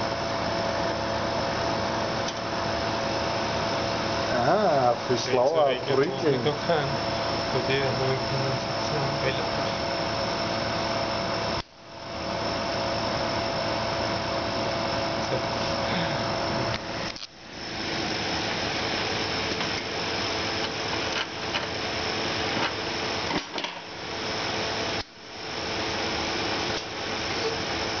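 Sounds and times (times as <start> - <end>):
condensing unit running: 0.0 - 28.0.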